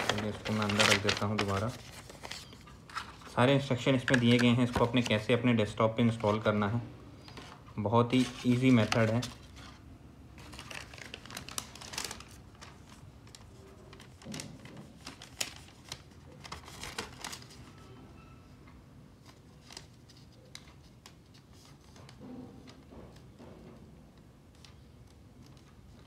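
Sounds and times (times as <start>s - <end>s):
plastic packaging crackling: 0.0s - 5.4s, 7.3s - 17.6s.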